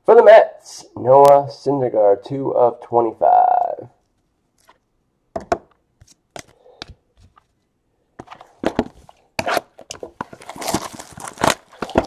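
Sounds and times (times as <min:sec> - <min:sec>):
hands handling card boxes: 0:06.0 - 0:07.6, 0:08.2 - 0:12.0.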